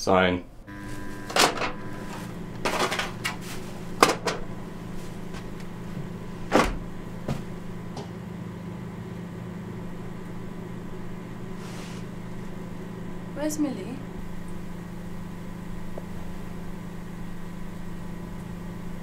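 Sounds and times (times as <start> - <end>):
steady low hum: 0.0 - 19.0
freezer door and foil trays clattering: 1.3 - 7.5.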